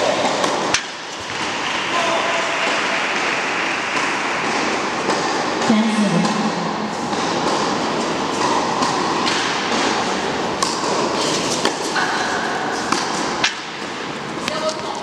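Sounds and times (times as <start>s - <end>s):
steady background noise: 0.0s - 15.0s
tennis ball struck by rackets: 6.2s - 14.6s.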